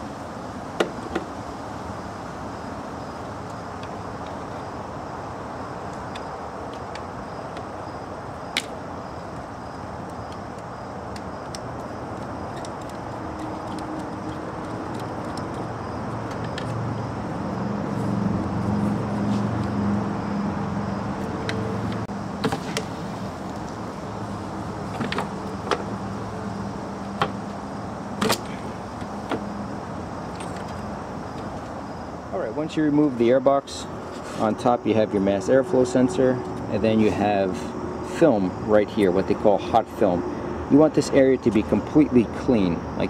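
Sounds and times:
low vehicle drone: 0:12.9 - 0:43.0.

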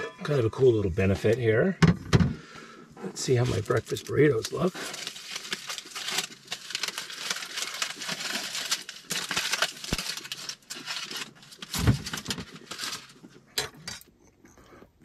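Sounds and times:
aluminium foil crinkling: 0:03.2 - 0:14.1.

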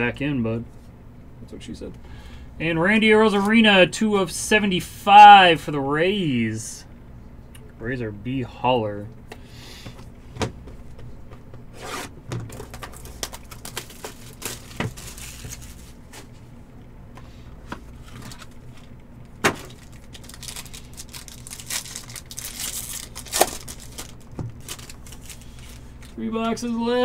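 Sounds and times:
packaging crinkling and tearing: 0:12.5 - 0:16.0, 0:18.0 - 0:26.2.

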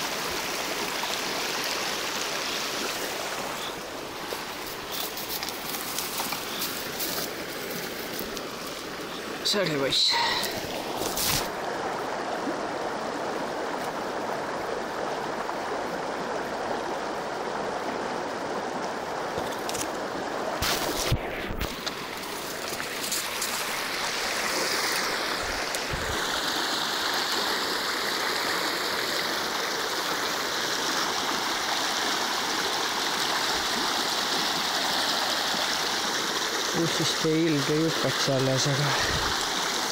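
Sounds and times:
river flowing: 0:00.0 - 0:39.9.

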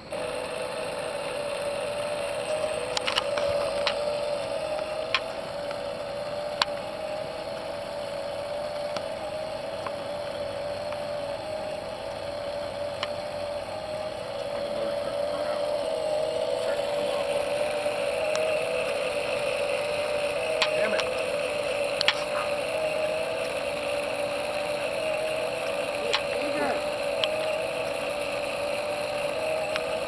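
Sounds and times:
electric motors humming: 0:00.0 - 0:30.0
faint clicks: 0:08.8 - 0:09.1, 0:09.7 - 0:10.0, 0:21.9 - 0:22.7.

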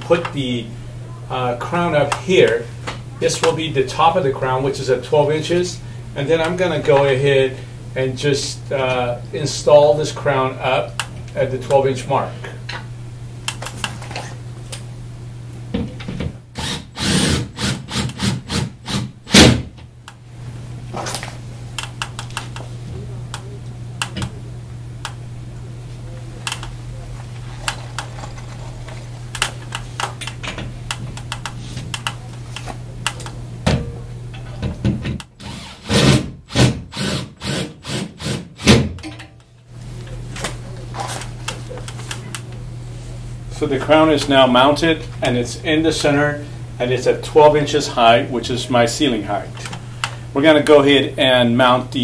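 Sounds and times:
steady low hum: 0:00.0 - 0:52.0
cordless drill driving screws: 0:16.6 - 0:19.1, 0:35.4 - 0:38.4.

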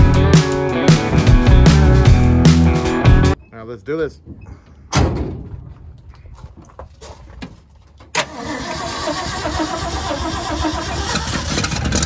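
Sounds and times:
car engine starting and running: 0:08.0 - 0:12.0.

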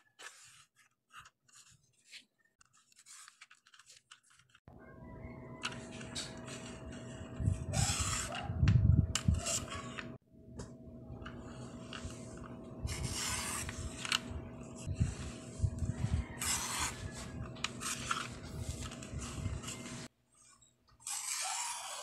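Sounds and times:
paper sliding on plastic: 0:00.0 - 0:04.6, 0:05.6 - 0:08.5, 0:09.1 - 0:10.2, 0:11.2 - 0:20.1, 0:21.0 - 0:22.0
paper trimmer blade sliding: 0:07.7 - 0:08.5, 0:21.0 - 0:22.0.

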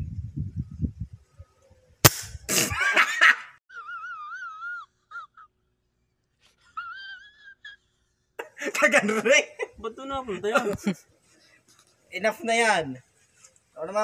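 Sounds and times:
air rifle shot: 0:02.0 - 0:02.7.

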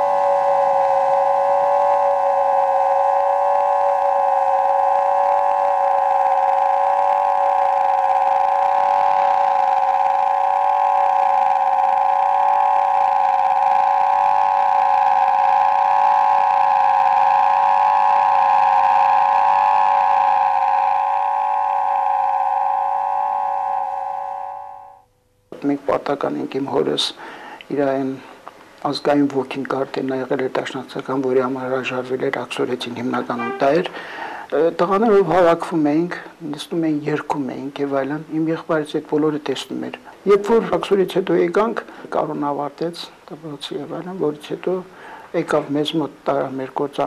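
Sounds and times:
droning musical chord: 0:00.0 - 0:25.0, 0:33.1 - 0:34.4.

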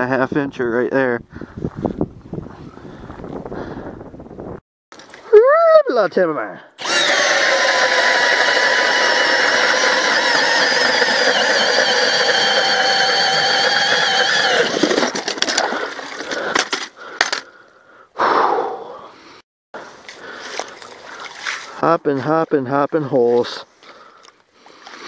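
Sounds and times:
ice auger motor whine: 0:06.8 - 0:15.7.

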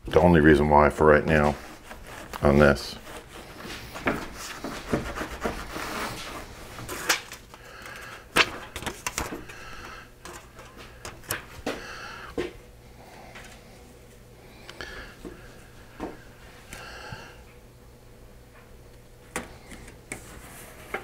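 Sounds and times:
rag rubbing on plastic: 0:01.3 - 0:07.2
foil tape crinkling: 0:01.6 - 0:11.6.

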